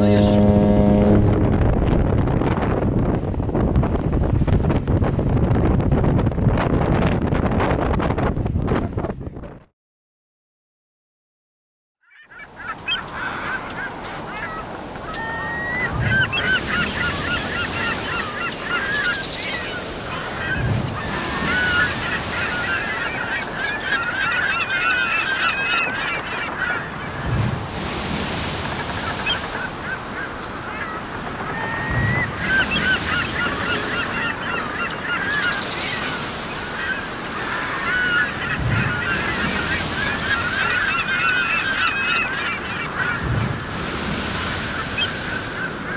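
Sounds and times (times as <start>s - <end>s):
flock of birds honking: 0.0s - 1.3s, 12.1s - 27.3s, 27.9s - 45.9s
low rushing swell: 0.0s - 1.8s.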